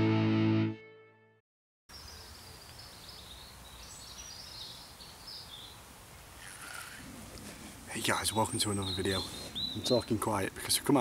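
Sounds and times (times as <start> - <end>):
songbird chirping and trilling: 1.9 - 5.8, 8.0 - 11.0.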